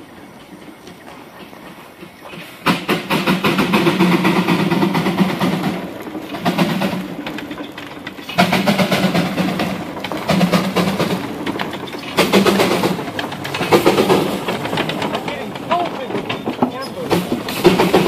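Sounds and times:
steam traction engine running: 0:00.0 - 0:18.0.

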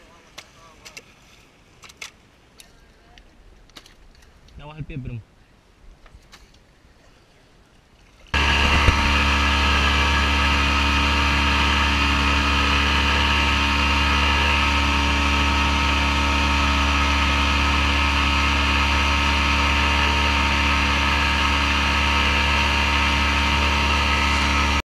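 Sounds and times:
outboard motor running: 0:08.3 - 0:24.8.

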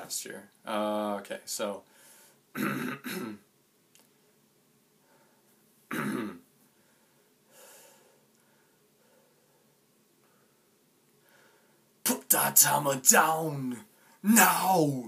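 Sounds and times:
man clearing throat: 0:02.6 - 0:03.4, 0:05.9 - 0:06.4.

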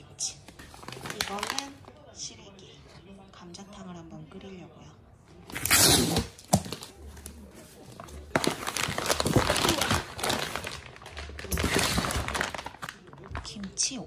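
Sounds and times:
packaging crinkling and rustling: 0:00.6 - 0:01.8, 0:05.5 - 0:13.6.

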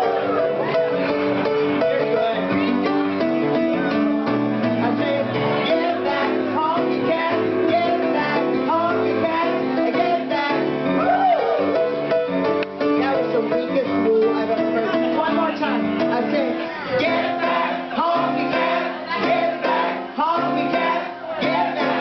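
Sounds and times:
piano accompaniment: 0:00.0 - 0:22.0
woman singing: 0:04.8 - 0:10.8.

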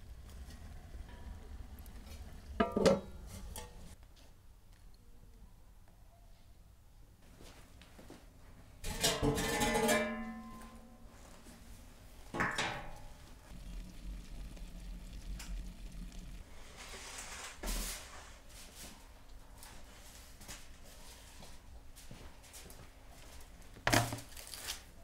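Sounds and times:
tray scraping on oven hearth: 0:00.3 - 0:04.0
iron oven door clanging: 0:02.1 - 0:04.0, 0:08.8 - 0:10.9, 0:12.4 - 0:13.1.

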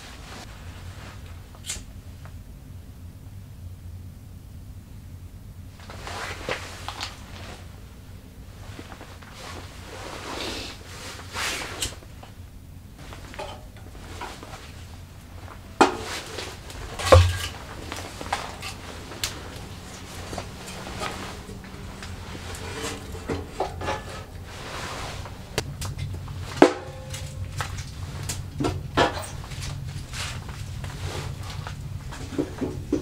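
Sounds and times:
rustling kindling: 0:05.8 - 0:12.4, 0:13.0 - 0:33.0.

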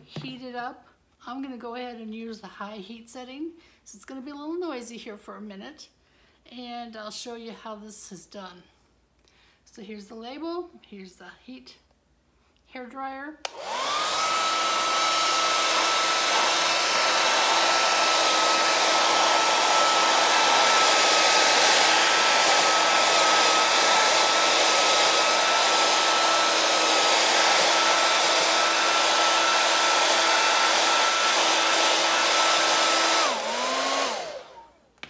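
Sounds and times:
hairdryer blowing and whining: 0:13.4 - 0:34.9.

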